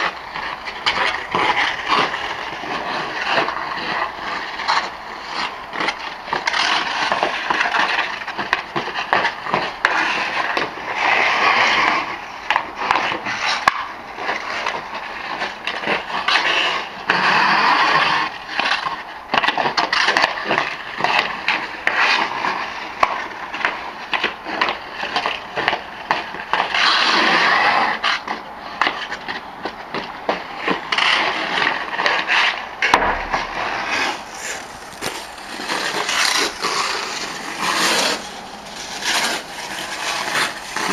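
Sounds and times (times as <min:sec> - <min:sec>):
hockey stick hitting puck: 0:00.0 - 0:40.9
skate blades scraping on ice: 0:00.0 - 0:40.9
hard knock: 0:32.9 - 0:34.8.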